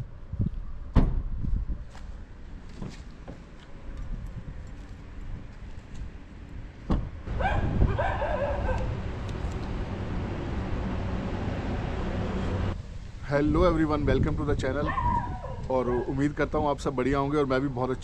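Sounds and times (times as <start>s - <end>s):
car door shutting: 6.9s - 7.1s
steady low hum: 7.2s - 12.8s.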